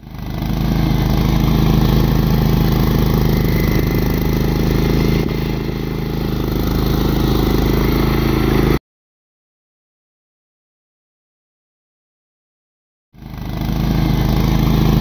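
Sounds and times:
garden tractor engine running: 0:00.0 - 0:08.8, 0:13.2 - 0:15.0
snow blower throwing snow: 0:00.0 - 0:08.8, 0:13.2 - 0:15.0.

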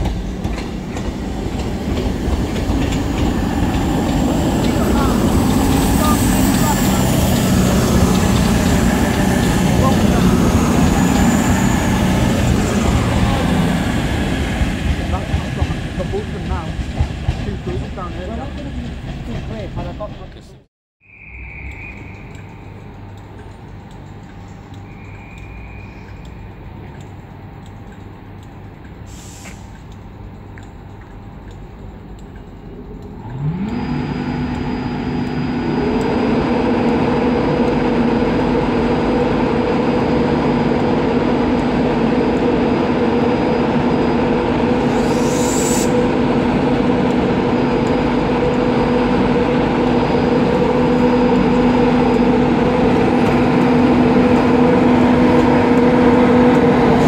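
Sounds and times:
electric locomotive whine and drone: 0:00.0 - 0:20.4, 0:21.0 - 0:57.0
air hiss: 0:29.1 - 0:29.7, 0:44.8 - 0:46.0.

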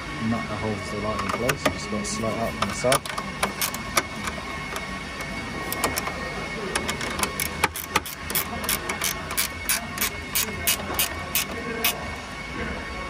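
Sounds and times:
spanner clicking: 0:02.9 - 0:06.1, 0:06.8 - 0:12.0.

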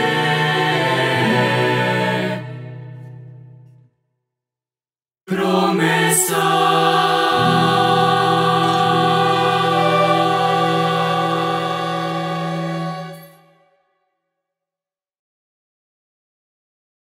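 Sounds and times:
choir singing: 0:00.0 - 0:03.0, 0:05.3 - 0:13.7
violins cello and guitar: 0:07.4 - 0:13.2.

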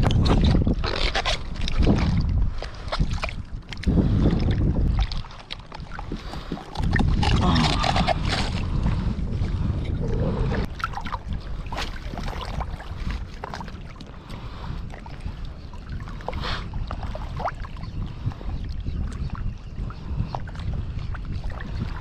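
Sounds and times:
wind buffeting microphone: 0:00.0 - 0:22.0
fishing gear clicks and knocks: 0:05.6 - 0:08.7.

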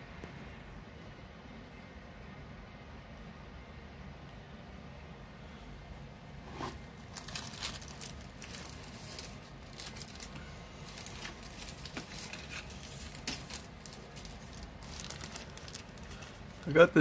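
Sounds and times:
plastic bag crinkling: 0:07.0 - 0:17.0.

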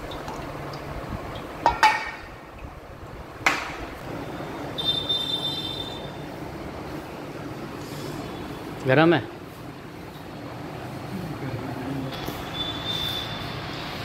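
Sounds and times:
workshop hum: 0:00.0 - 0:14.0
brief high squeak: 0:12.4 - 0:13.4.

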